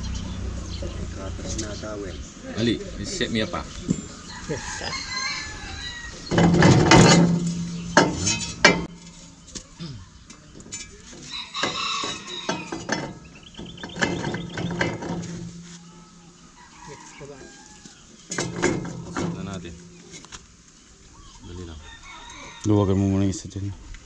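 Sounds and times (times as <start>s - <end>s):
chickens calling: 0.0s - 23.3s
rooster call: 4.3s - 6.3s
wrenches clinking on metal: 6.3s - 9.2s, 10.6s - 15.7s.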